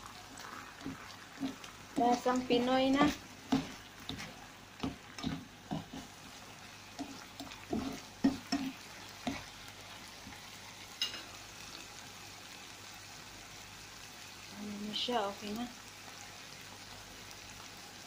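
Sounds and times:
faint sizzle: 0:00.0 - 0:18.0
spatula scraping a frying pan: 0:00.4 - 0:09.5.

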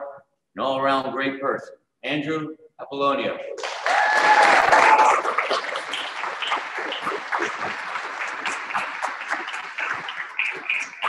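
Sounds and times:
audience applauding: 0:03.6 - 0:11.0.

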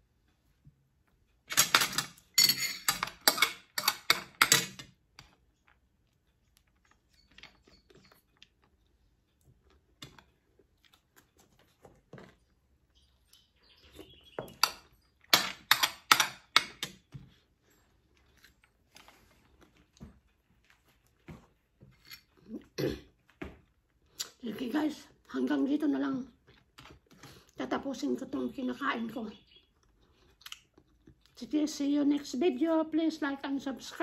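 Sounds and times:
eating clicks and smacks: 0:29.7 - 0:31.4.

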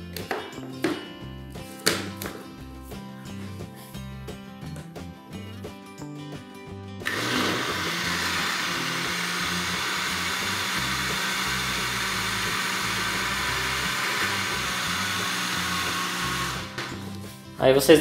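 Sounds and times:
background music: 0:00.0 - 0:18.0
blender running: 0:07.0 - 0:17.0.

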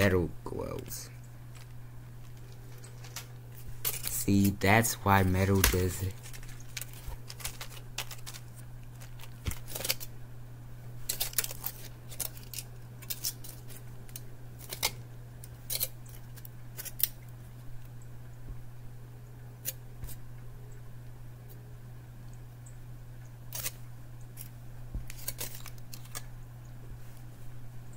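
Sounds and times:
blister pack crackling: 0:00.4 - 0:10.2, 0:11.0 - 0:17.3, 0:25.1 - 0:26.3.

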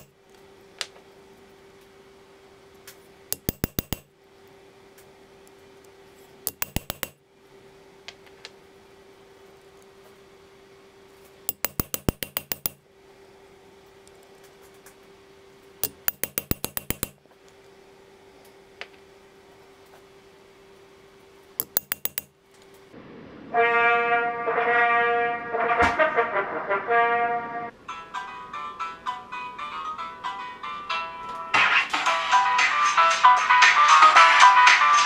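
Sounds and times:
hammer tapping metal punch: 0:03.3 - 0:04.1, 0:06.5 - 0:07.2, 0:11.5 - 0:12.8, 0:15.8 - 0:17.2, 0:21.6 - 0:22.3.

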